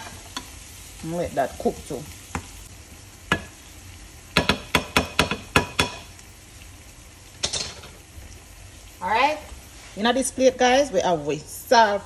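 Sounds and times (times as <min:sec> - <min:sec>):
vegetables sizzling: 0:00.0 - 0:12.0
spatula tapping frying pan: 0:03.2 - 0:03.6, 0:04.3 - 0:06.2.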